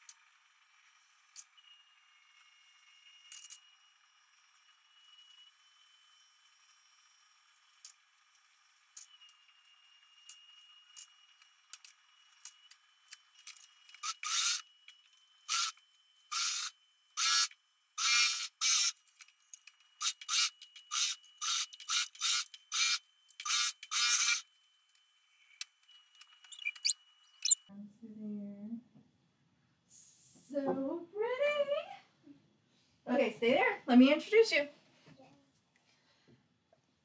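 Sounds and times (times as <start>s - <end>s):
faint high whine: 0.1s - 18.0s, 18.9s - 28.7s.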